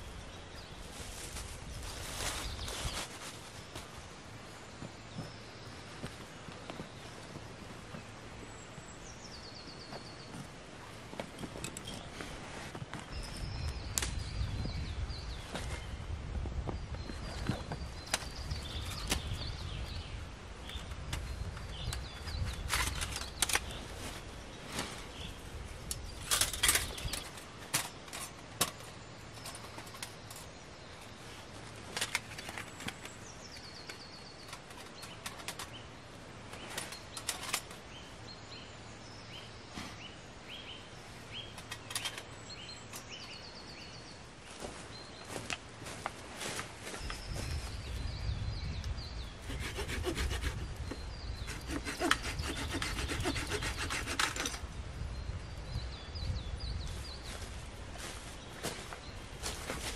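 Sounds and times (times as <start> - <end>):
wind rumble on microphone: 0.0 - 4.1, 11.0 - 27.5, 46.8 - 59.9
songbirds chirping and trilling: 0.0 - 59.9
dry leaves rustling: 0.6 - 4.6.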